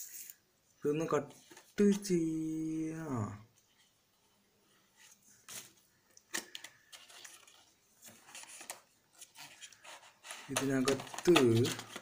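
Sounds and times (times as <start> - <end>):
paper scratching and rustling: 6.9 - 12.0.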